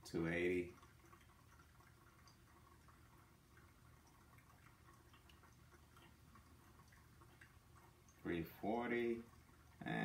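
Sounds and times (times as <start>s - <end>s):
soft dripping: 0.0s - 10.0s
thin stream of water pouring: 0.0s - 10.0s.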